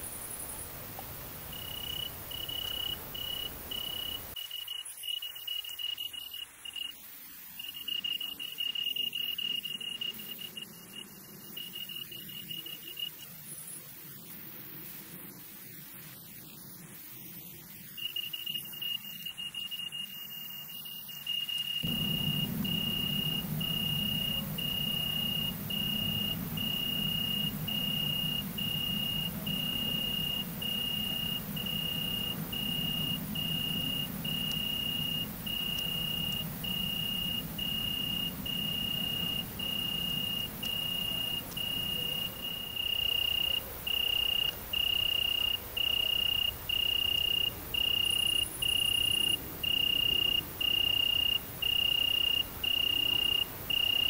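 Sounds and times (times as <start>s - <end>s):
cricket chirping: 0.0s - 54.0s
low hum: 21.8s - 51.0s.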